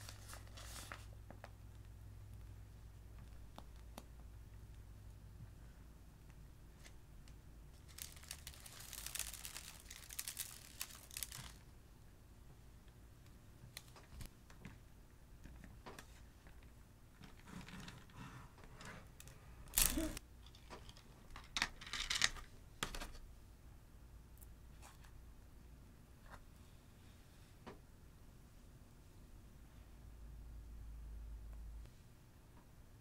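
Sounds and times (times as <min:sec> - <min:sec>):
slime and foam crackling: 0:07.8 - 0:11.6, 0:19.8 - 0:20.2.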